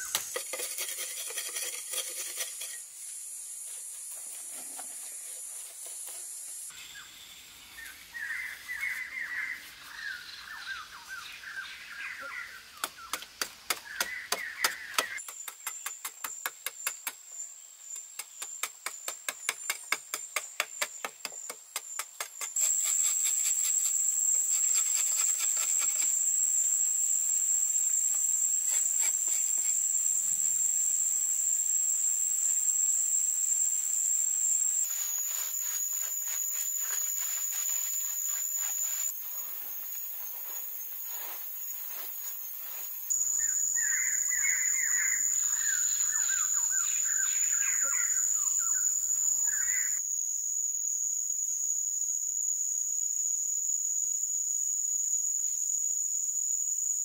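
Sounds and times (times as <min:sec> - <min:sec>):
insect drone: 0:00.0 - 0:13.1, 0:13.7 - 0:57.0
machete scraping clay: 0:00.1 - 0:02.9, 0:22.6 - 0:26.1
bird chirps: 0:43.1 - 0:50.0.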